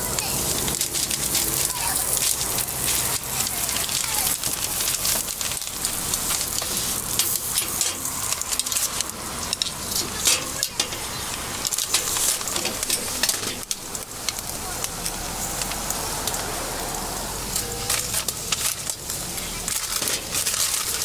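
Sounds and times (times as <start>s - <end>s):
batter sizzling in iron molds: 0.0s - 21.0s
iron molds clicking and knocking: 4.4s - 14.5s.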